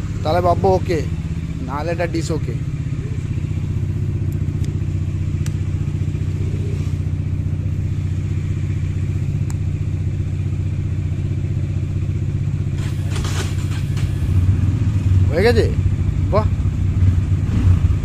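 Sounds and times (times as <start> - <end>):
motorcycle engine idling: 0.0 - 18.0
brief rustle or clatter: 12.8 - 14.3.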